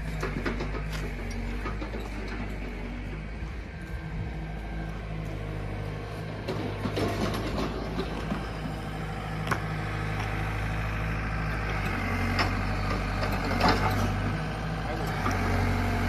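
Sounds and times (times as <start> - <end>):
backhoe digging scrapes and knocks: 0.0 - 3.6, 6.2 - 10.5, 11.4 - 16.0
diesel engine running: 0.0 - 16.0.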